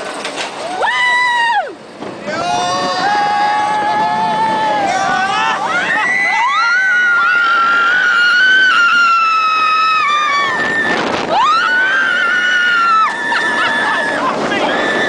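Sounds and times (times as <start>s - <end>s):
rush of noise: 0.0s - 15.0s
riders screaming: 0.6s - 15.0s.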